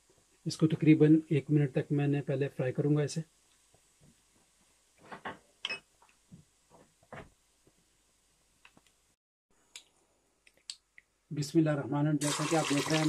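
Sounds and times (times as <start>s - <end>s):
seeds frying in oil: 12.2s - 13.0s.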